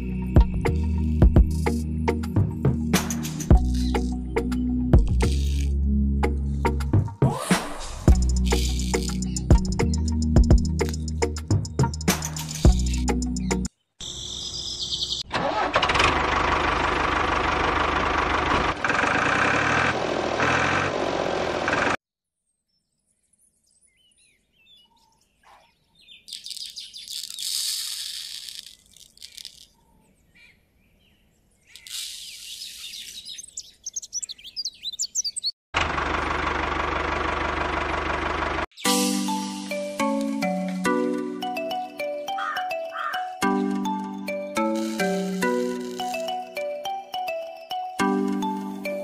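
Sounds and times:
seeds rattling onto paper: 0:05.2 - 0:05.7, 0:08.1 - 0:09.5, 0:26.3 - 0:29.8, 0:31.7 - 0:33.2, 0:44.6 - 0:46.5
background music: 0:38.8 - 0:49.0.

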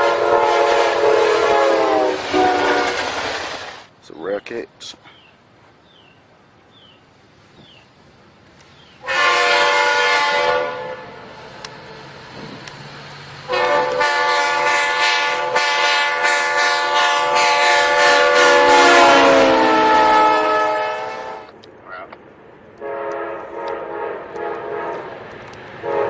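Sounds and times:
train horn blasts: 0:00.0 - 0:03.1, 0:09.0 - 0:11.3, 0:13.4 - 0:21.5, 0:22.8 - 0:25.2.

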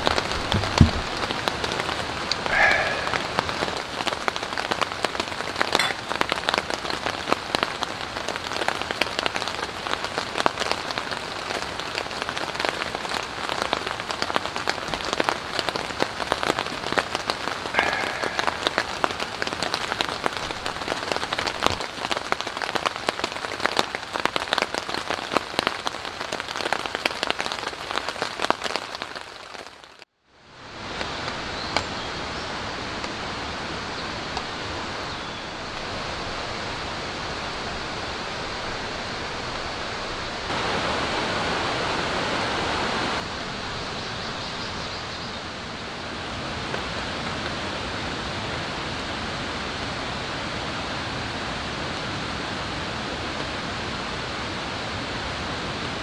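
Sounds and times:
rain pattering on tarp: 0:00.0 - 0:56.0.

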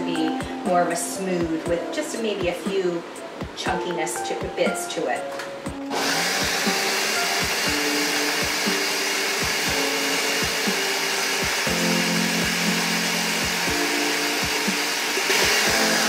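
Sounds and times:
background music with steady beat: 0:00.0 - 0:16.0
countertop blender running: 0:05.9 - 0:16.0.

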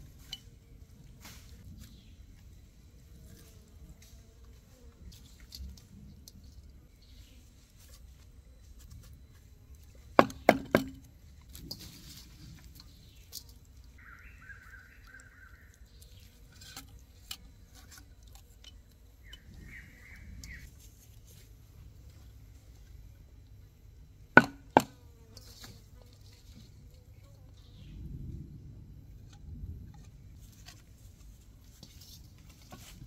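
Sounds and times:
blade chopping wood: 0:10.2 - 0:11.1, 0:24.4 - 0:25.0.

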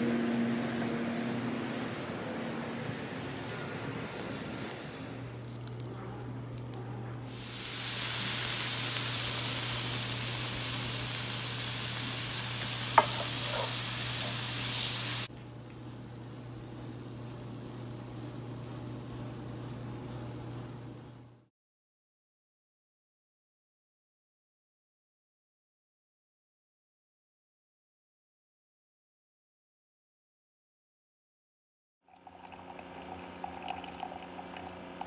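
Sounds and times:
food sizzling in a frying pan: 0:05.2 - 0:15.3.

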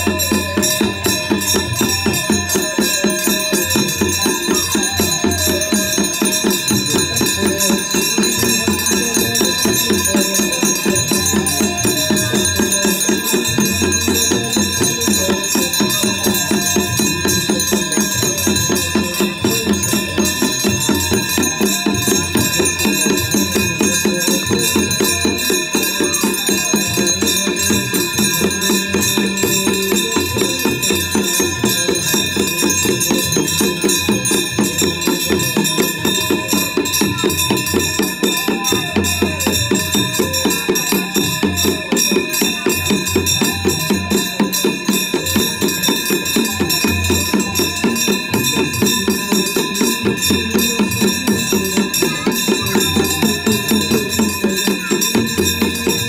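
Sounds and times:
person singing: 0:00.0 - 0:55.9
continuous ringing tones: 0:00.0 - 0:56.0
jingling percussion rhythm: 0:00.0 - 0:56.0.

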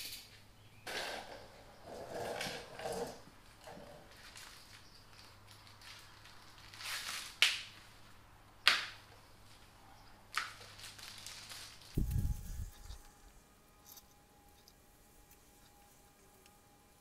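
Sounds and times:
packaging rustling: 0:10.3 - 0:13.2.

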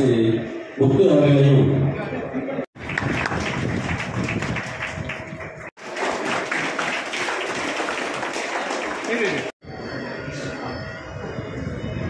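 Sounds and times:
audience applause: 0:02.8 - 0:09.6.

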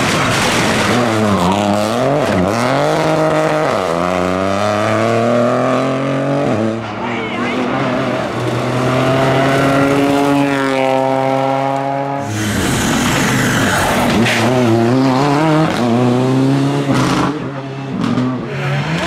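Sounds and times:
rally car engine revving: 0:00.0 - 0:19.0.

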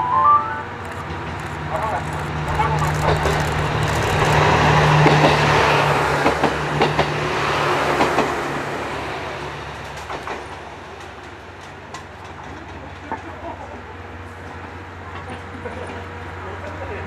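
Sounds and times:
train engine hum: 0:00.0 - 0:17.0
train wheels rushing on rail: 0:00.7 - 0:17.0
wheels clicking over rail joints: 0:00.8 - 0:07.2, 0:09.8 - 0:13.8.

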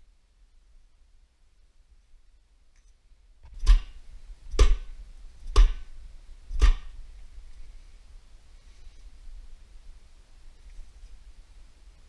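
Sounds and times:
sharp knocks with low thump: 0:03.4 - 0:05.9, 0:06.5 - 0:07.0.

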